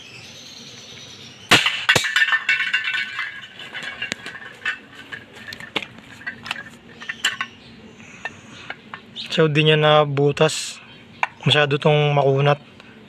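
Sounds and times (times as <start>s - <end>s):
airsoft gun shot hitting can: 1.5s - 2.1s
tin can clattering on concrete: 1.5s - 7.5s.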